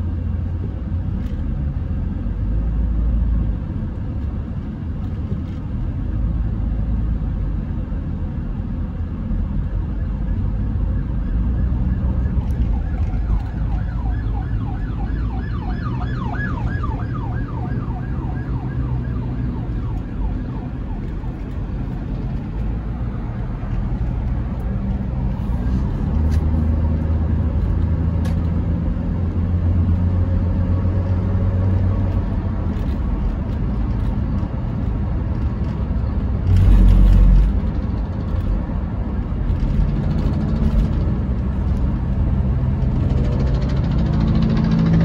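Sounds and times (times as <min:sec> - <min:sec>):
car driving on road: 0:00.0 - 0:45.0
emergency vehicle yelp siren: 0:09.6 - 0:24.1.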